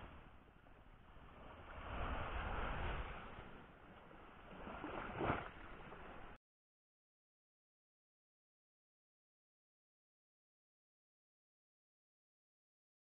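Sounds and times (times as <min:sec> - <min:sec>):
small waves washing on beach: 0:00.0 - 0:06.4
wind rumbling on microphone: 0:00.0 - 0:06.4.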